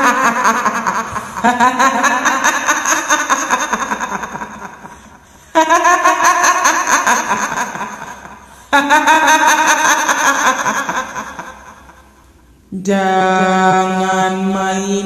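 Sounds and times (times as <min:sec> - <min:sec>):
woman cackling laugh: 0:00.0 - 0:12.1
droning chant-like voice: 0:12.7 - 0:15.0.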